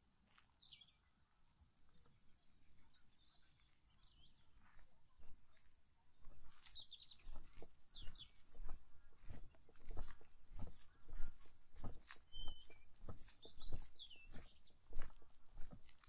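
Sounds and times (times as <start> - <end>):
songbirds chirping and whistling: 0.0 - 1.1, 1.9 - 16.0
footsteps on path: 3.3 - 16.0.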